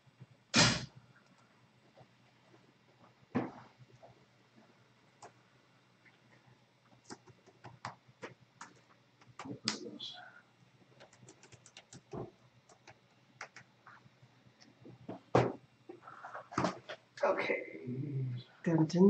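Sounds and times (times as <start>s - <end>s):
keyboard typing clicks: 11.0s - 13.7s
knock: 15.1s - 15.6s.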